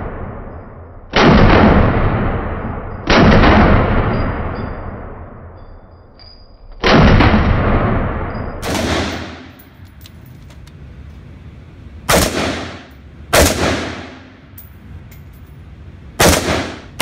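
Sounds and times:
rifle shots echoing: 1.1s - 4.2s, 6.8s - 9.8s, 12.0s - 14.6s, 16.1s - 17.0s.

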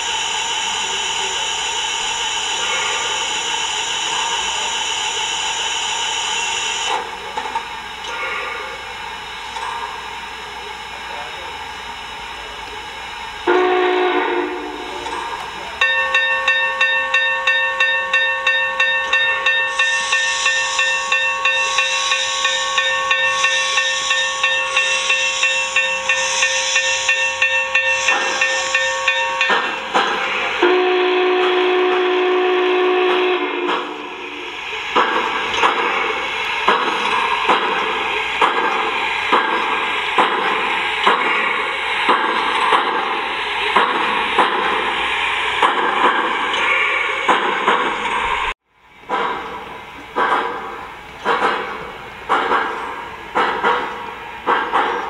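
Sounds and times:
pulsing steam hiss: 0.0s - 48.6s
steam exhaust chuffs: 0.0s - 55.0s
steam whistle blast: 13.4s - 15.0s, 19.6s - 34.6s
bell ringing: 15.1s - 30.4s.

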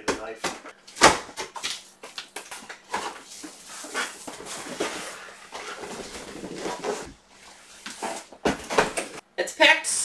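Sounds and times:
cardboard scraping and rustling: 2.9s - 9.2s.

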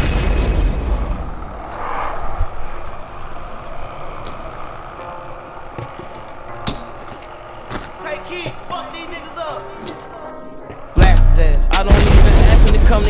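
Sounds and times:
rumbling boom sound effect: 0.0s - 2.6s
bike tyres rolling on concrete: 0.0s - 11.1s.

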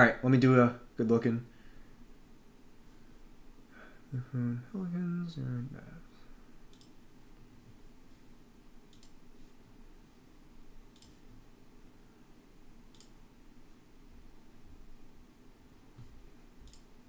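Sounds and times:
low room hum: 0.0s - 17.0s
computer mouse clicks: 6.7s - 7.0s, 8.9s - 9.2s, 10.9s - 11.2s, 12.9s - 13.2s, 16.0s - 17.0s.

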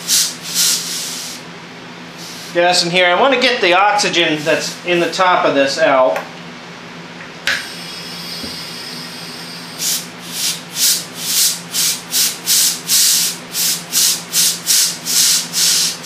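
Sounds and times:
gas hissing through line: 0.0s - 1.5s, 2.1s - 2.7s, 4.3s - 5.1s, 7.5s - 16.0s
relief valve venting bursts: 0.0s - 1.5s, 2.1s - 2.8s, 4.3s - 5.1s, 7.5s - 16.0s.

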